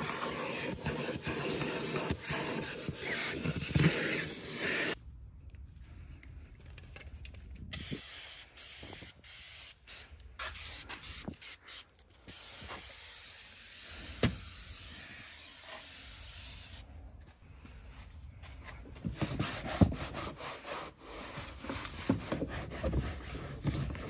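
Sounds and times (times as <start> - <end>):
aerosol can spraying hiss: 0.3 - 5.0, 7.8 - 16.8.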